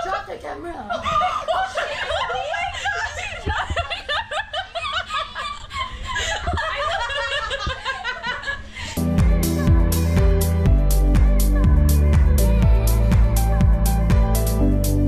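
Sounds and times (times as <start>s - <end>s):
people laughing: 0.0s - 8.9s
electronic dance music: 9.0s - 15.0s.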